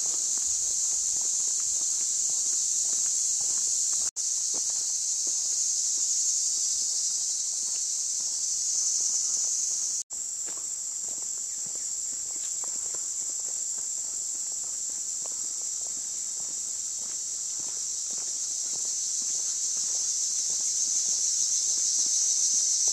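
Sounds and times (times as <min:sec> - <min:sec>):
footsteps on dirt trail: 0:00.0 - 0:05.5, 0:10.4 - 0:20.7
insects chorus: 0:00.0 - 0:22.9.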